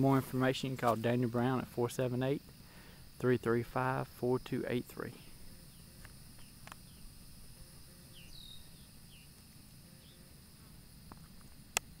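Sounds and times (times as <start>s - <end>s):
high insect drone: 0.0s - 12.0s
falling bird chirps: 8.1s - 9.4s.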